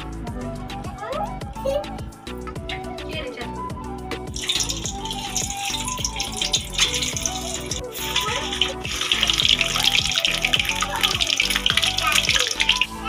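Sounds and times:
background music: 0.0s - 13.0s
eggs sizzling in hot oil: 4.4s - 13.0s.

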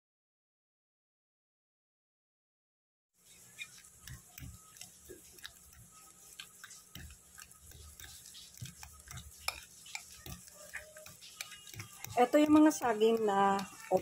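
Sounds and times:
fork mashing bananas: 3.2s - 14.0s.

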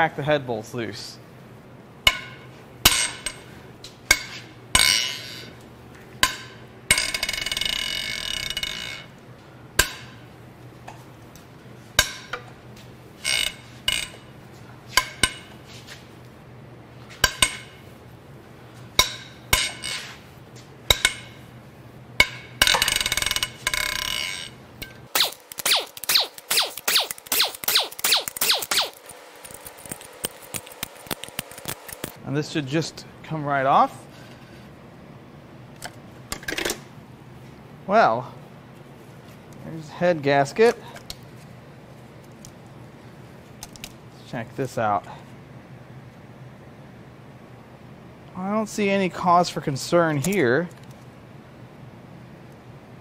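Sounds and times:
fast ratchet clicks: 25.1s - 32.2s.

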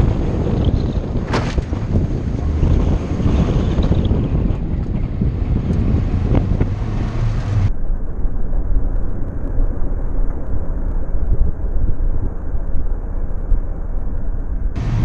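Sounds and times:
tyres rumbling on dirt: 0.0s - 7.7s, 14.8s - 15.0s
car engine drone: 0.0s - 15.0s
wind buffeting on microphone: 0.0s - 15.0s.

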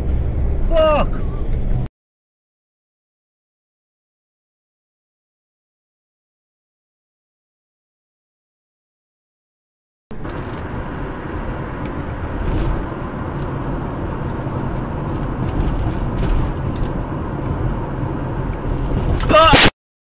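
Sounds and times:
road and engine noise inside car: 0.0s - 1.9s, 10.1s - 19.7s.

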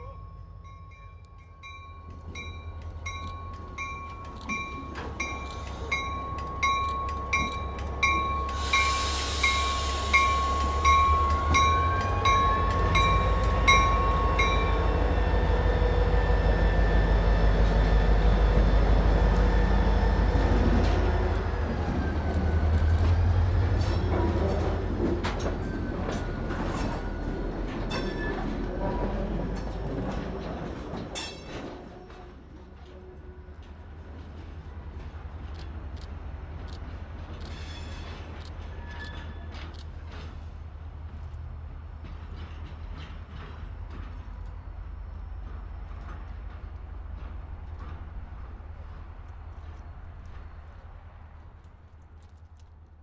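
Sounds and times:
locomotive bell ringing: 0.0s - 15.4s, 25.7s - 28.6s
train wheels squealing: 4.4s - 29.3s, 37.4s - 39.9s.

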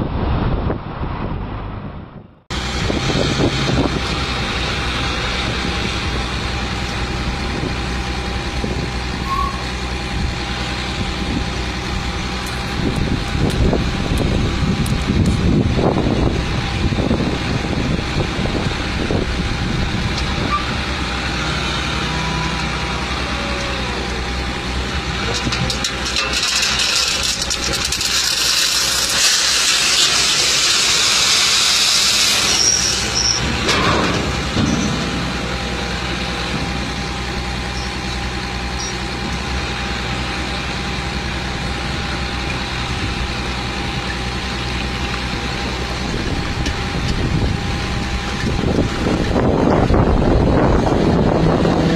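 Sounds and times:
truck engine running: 1.4s - 51.9s
loud hiss: 28.2s - 33.5s.

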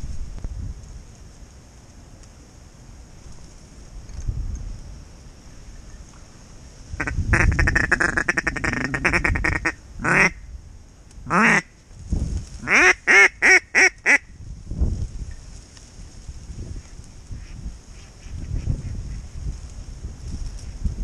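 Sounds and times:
duck call quacking: 7.0s - 10.4s, 11.3s - 11.7s, 12.6s - 14.2s.

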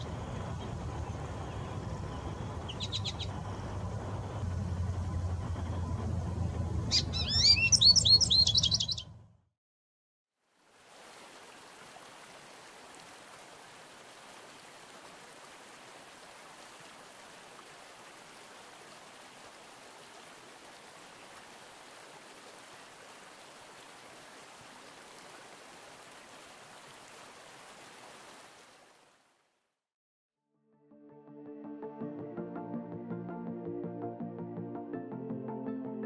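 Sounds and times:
stream running water: 10.4s - 29.6s.

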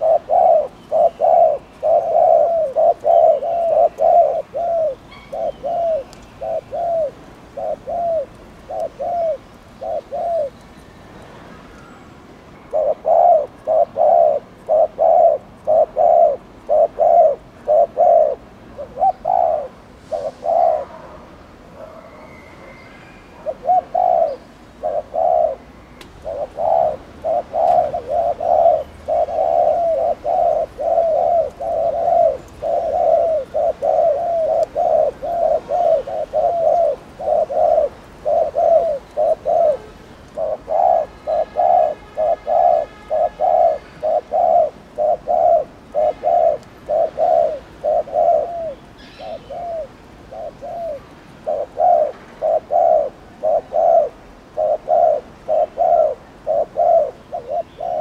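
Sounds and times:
dove cooing: 0.0s - 10.6s, 12.7s - 22.2s, 23.3s - 58.0s.

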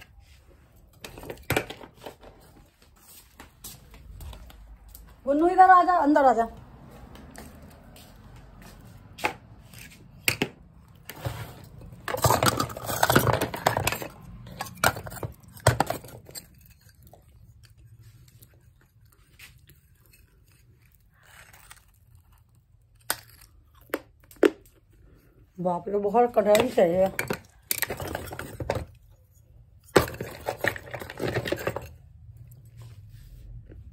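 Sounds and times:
clay pieces clattering in plastic tub: 11.9s - 16.5s, 26.4s - 28.9s, 29.8s - 32.0s.

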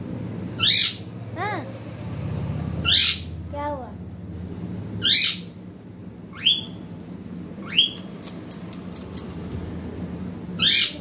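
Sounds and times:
parakeet screeching: 0.6s - 1.1s, 2.8s - 3.4s, 5.0s - 5.6s, 6.3s - 6.8s, 7.6s - 8.3s, 10.6s - 11.0s
sharp clicks: 8.0s - 9.6s.

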